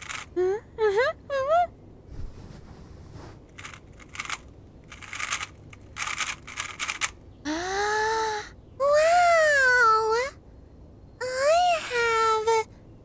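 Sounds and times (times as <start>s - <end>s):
puzzle cube clicking: 0.0s - 0.3s, 3.6s - 7.2s
woman's high whining hum: 0.3s - 1.8s, 7.4s - 10.4s, 11.2s - 12.8s.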